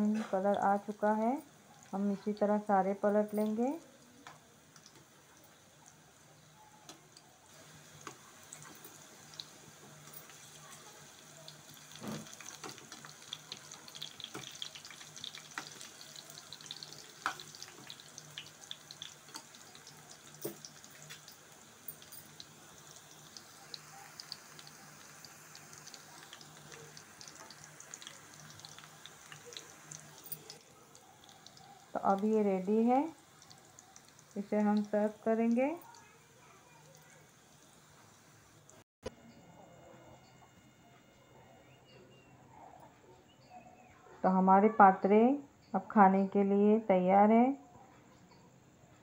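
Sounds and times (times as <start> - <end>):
oil sizzling and crackling: 0.0 - 38.9.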